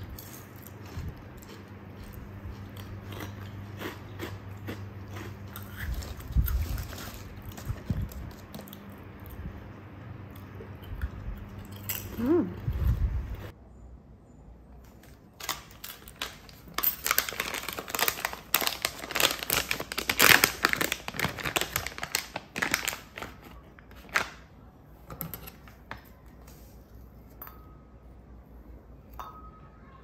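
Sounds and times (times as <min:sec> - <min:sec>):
plastic pouch crinkling: 0:15.4 - 0:24.4.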